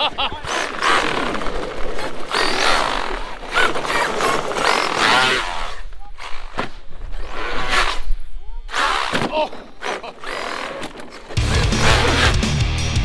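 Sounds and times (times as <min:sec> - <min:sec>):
tyre noise on tarmac: 0:00.0 - 0:12.6
electric motor whine: 0:00.4 - 0:12.5
people shouting: 0:11.4 - 0:12.5.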